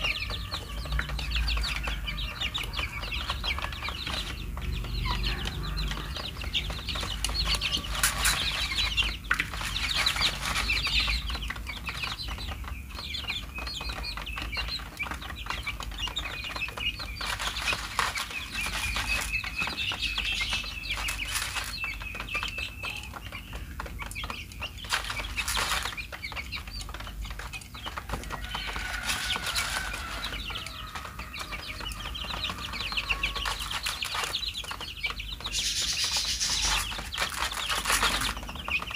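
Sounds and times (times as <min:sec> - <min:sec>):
chicks cheeping: 0:00.0 - 0:38.9
wings fluttering: 0:13.6 - 0:38.9.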